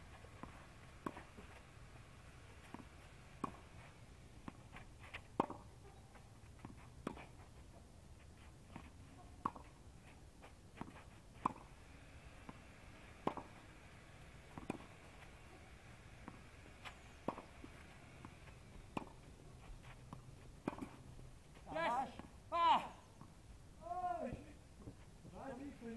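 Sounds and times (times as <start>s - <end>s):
tennis ball bouncing on clay: 0.2s - 3.8s, 4.4s - 7.4s, 8.8s - 9.8s, 10.8s - 19.3s, 20.0s - 21.1s
tennis ball struck by rackets: 0.2s - 3.8s, 4.4s - 5.7s, 9.4s - 9.8s, 10.8s - 19.3s, 20.1s - 21.1s.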